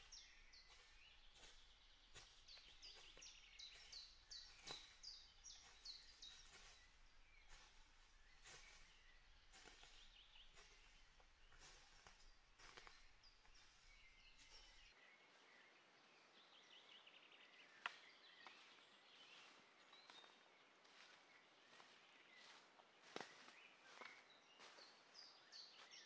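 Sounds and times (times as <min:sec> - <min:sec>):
footsteps on dry leaves: 0:00.0 - 0:14.9, 0:20.9 - 0:25.1
small birds chirping: 0:00.0 - 0:26.0.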